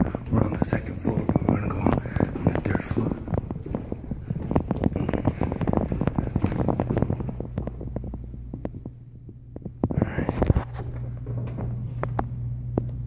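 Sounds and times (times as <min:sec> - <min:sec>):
steady low hum: 0:00.0 - 0:13.0
footsteps on stairs: 0:00.2 - 0:09.0.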